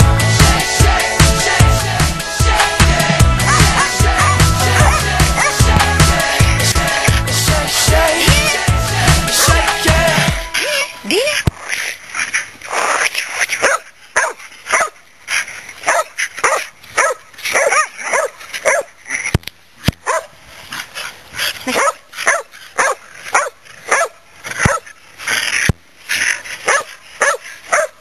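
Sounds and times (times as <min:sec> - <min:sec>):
dogs barking: 0:03.4 - 0:05.8, 0:13.6 - 0:15.0, 0:15.8 - 0:18.9, 0:20.0 - 0:20.3, 0:21.7 - 0:24.9, 0:26.6 - 0:28.0.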